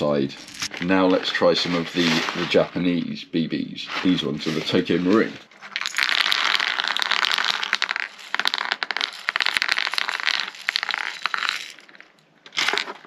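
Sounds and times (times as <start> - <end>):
plastic pellets rattling: 4.0 - 13.0.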